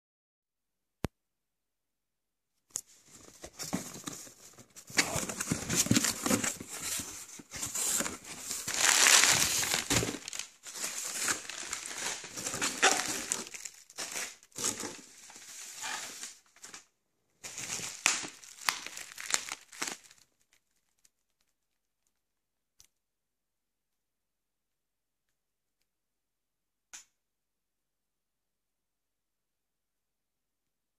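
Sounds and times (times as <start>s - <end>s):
cardboard rustling and scraping: 3.0s - 16.4s
plastic wrapping crinkling: 3.1s - 22.2s.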